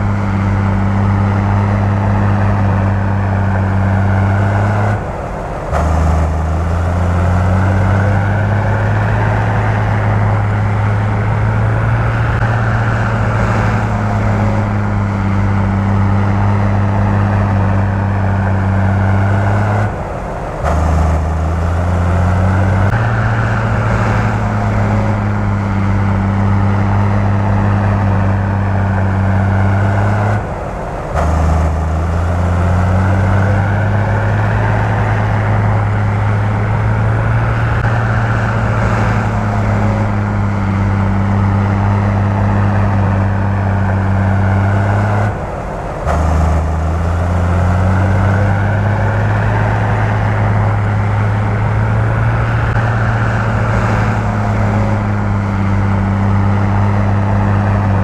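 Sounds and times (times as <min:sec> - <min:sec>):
diesel machinery engine drone: 0:00.0 - 0:58.0.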